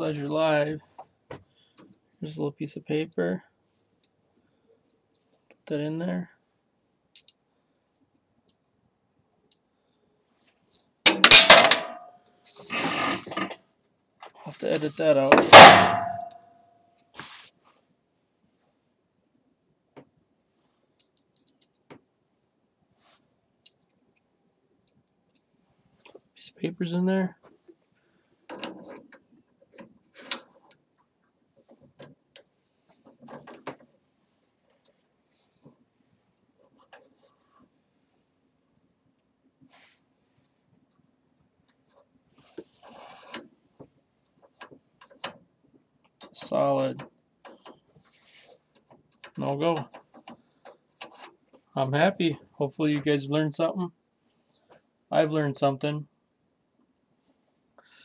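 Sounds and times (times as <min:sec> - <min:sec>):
metal parts clattering: 0:11.1 - 0:12.1, 0:15.4 - 0:16.4
quiet metal rattle: 0:14.6 - 0:16.4
rifle bolt metallic clicks and scrapes: 0:28.5 - 0:30.8, 0:41.7 - 0:43.5, 0:47.0 - 0:51.4.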